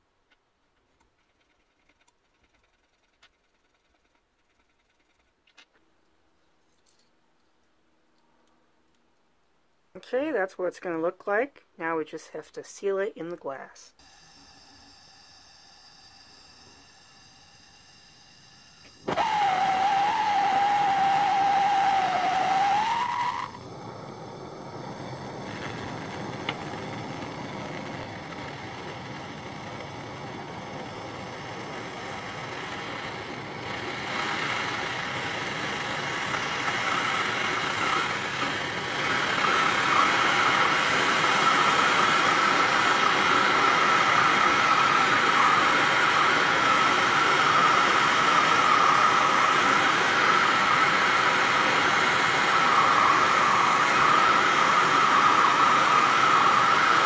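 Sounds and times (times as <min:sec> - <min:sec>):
gas torch flame hissing: 0:14.0 - 0:57.0
steady whistle: 0:14.0 - 0:57.0.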